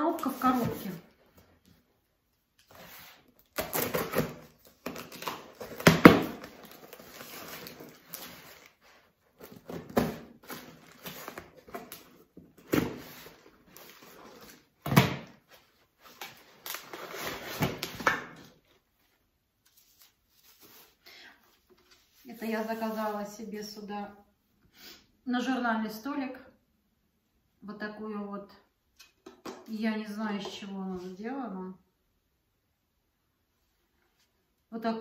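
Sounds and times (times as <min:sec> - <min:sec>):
bubble wrap crinkling: 0:03.4 - 0:12.0
packaging rustling and crackling: 0:03.4 - 0:12.2.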